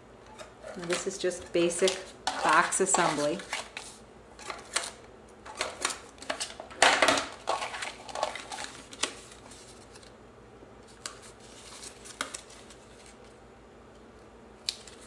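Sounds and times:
cardstock folding and crinkling: 0.4s - 10.2s, 10.8s - 13.4s, 14.6s - 15.0s.

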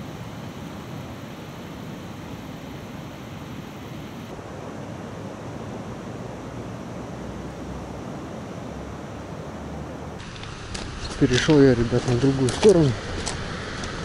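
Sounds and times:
wind rumble on microphone: 0.0s - 14.0s
rain falling on pond: 10.2s - 14.0s.

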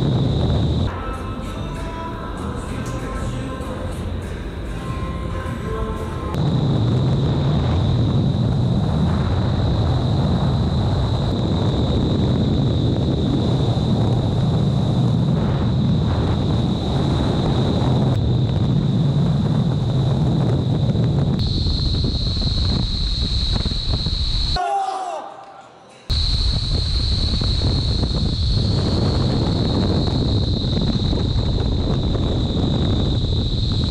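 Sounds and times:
wind buffeting microphone: 0.0s - 0.9s, 6.4s - 24.6s, 26.1s - 33.9s
high-pitched whine: 0.0s - 24.6s, 26.1s - 33.9s
rush of air in wind tunnel: 0.0s - 24.6s, 26.1s - 33.9s.

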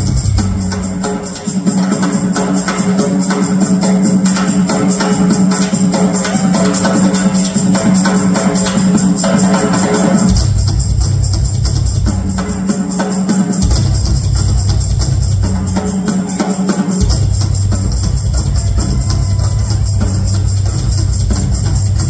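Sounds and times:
cymbals: 0.0s - 22.0s.

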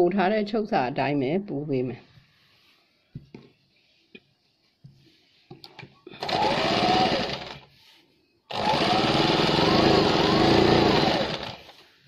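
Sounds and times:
sewing machine stitching: 6.2s - 7.7s, 8.5s - 11.8s.

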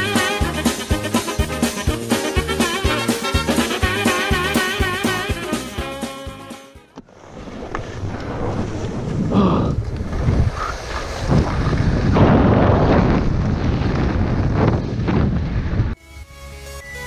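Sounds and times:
electronic music: 0.0s - 6.8s
skis scraping over snow: 7.0s - 16.0s
wind rushing over microphone: 7.1s - 16.0s.

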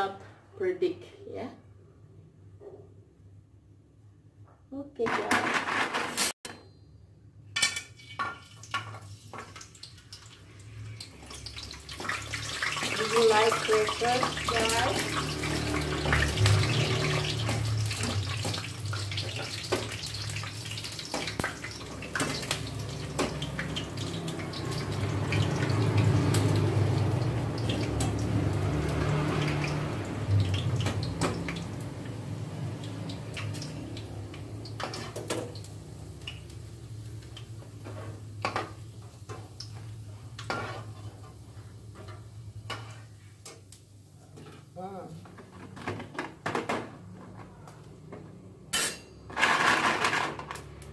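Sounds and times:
crackers sizzling in hot oil: 7.6s - 46.0s, 49.0s - 50.9s.

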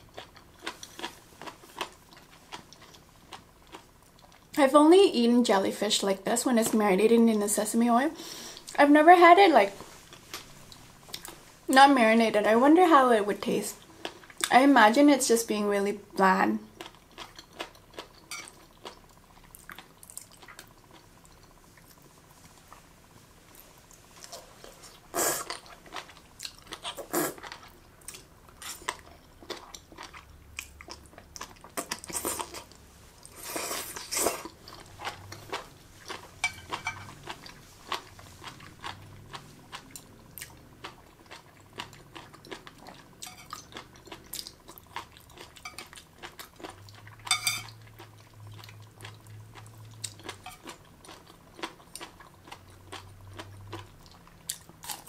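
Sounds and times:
close chewing with wet crunches: 0.0s - 4.6s, 23.9s - 55.0s.

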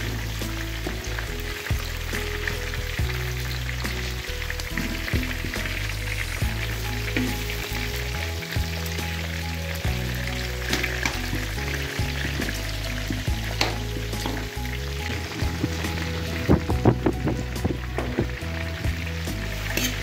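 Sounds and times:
pork sizzling in fat: 0.0s - 20.0s
metal spoon scraping pan: 19.7s - 20.0s.

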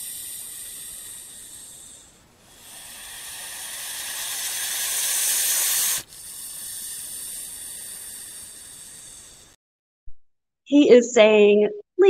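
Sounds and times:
snake hissing: 0.0s - 9.6s.

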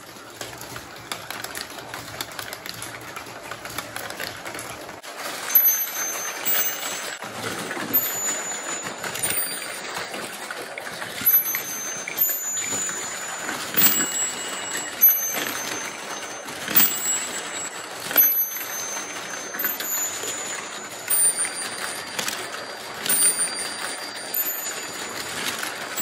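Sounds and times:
marbles rolling on plastic track: 0.0s - 26.0s
high metallic rings: 5.4s - 26.0s.

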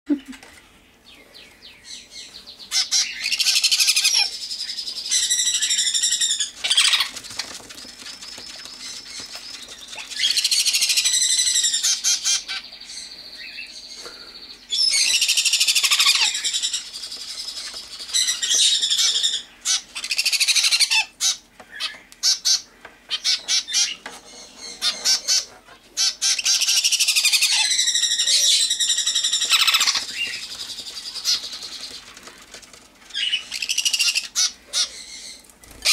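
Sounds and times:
parrot chicks begging cries: 1.4s - 35.9s.

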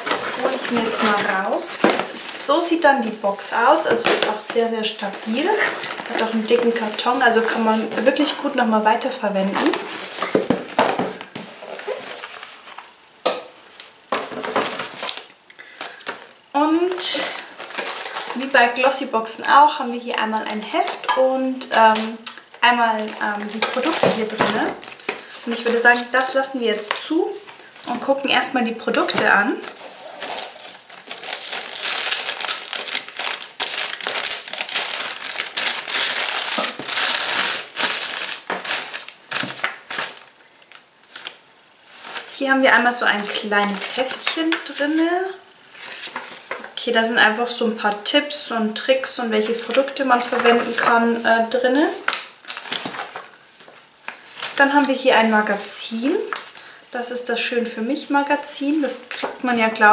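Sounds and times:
cardboard rustling: 0.0s - 2.4s, 3.4s - 8.3s, 9.6s - 13.0s, 16.8s - 18.5s, 29.0s - 42.3s, 43.2s - 46.8s, 49.5s - 56.6s.

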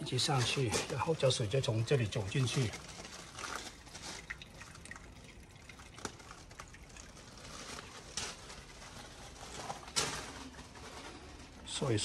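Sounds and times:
water drips: 0.0s - 8.8s
water trickling into tank: 0.0s - 10.0s.

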